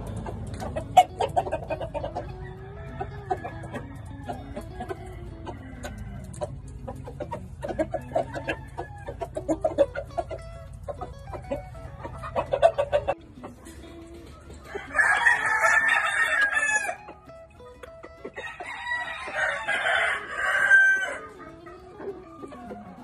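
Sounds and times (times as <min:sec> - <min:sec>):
quick clucks: 0:00.0 - 0:14.8
roosters crowing: 0:00.0 - 0:17.6, 0:18.2 - 0:23.0.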